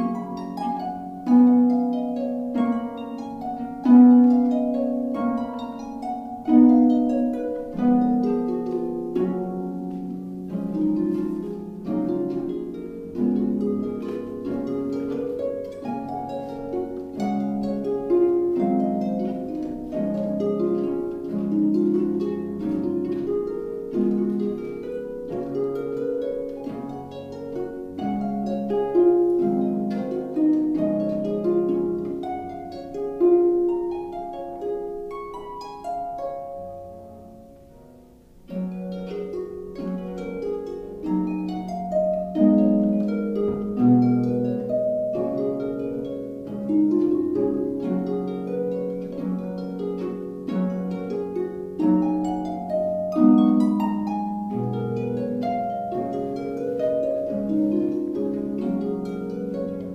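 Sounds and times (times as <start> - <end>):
solo harp melody: 0.0 - 59.9.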